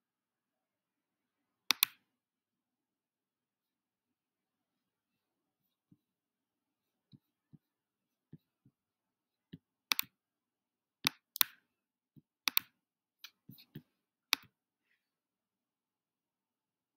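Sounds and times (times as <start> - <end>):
computer mouse clicks: 1.7 - 2.0, 9.5 - 10.2, 11.0 - 11.6, 12.4 - 14.5.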